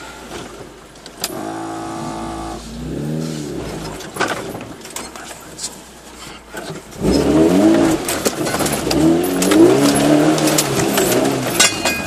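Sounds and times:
engine revving hard: 1.3s - 4.0s, 7.0s - 8.1s, 8.7s - 11.5s
body knocks and rattles: 3.5s - 5.7s.

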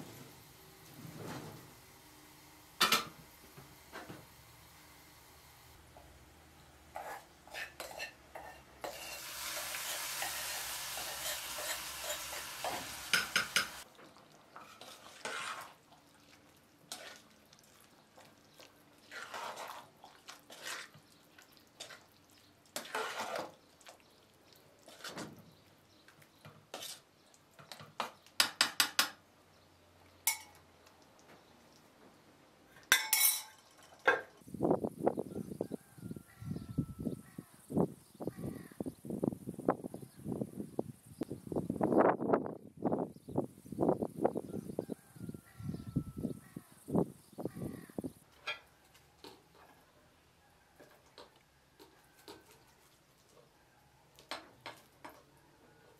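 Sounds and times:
metal spoon scraping a pot: 6.9s - 13.8s, 14.6s - 15.8s, 16.9s - 17.3s, 19.0s - 19.9s, 20.5s - 21.1s, 22.8s - 23.6s, 26.7s - 27.1s
liquid hissing in a pot: 8.8s - 13.8s.

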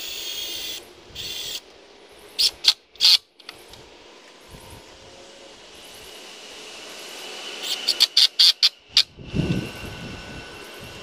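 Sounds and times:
power drill driving screws: 0.0s - 1.6s, 2.4s - 3.2s, 7.5s - 9.1s.

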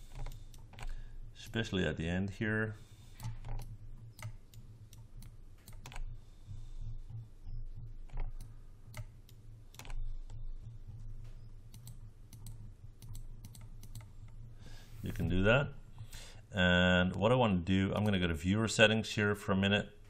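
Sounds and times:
keyboard and mouse clicks: 0.0s - 1.6s, 3.2s - 6.1s, 8.0s - 10.4s, 11.3s - 14.4s
steady low hum: 0.0s - 20.0s.

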